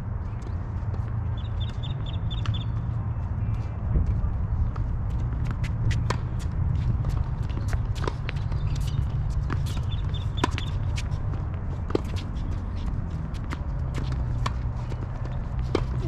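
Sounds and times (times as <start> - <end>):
ball bouncing on hard court: 7.1 - 11.1.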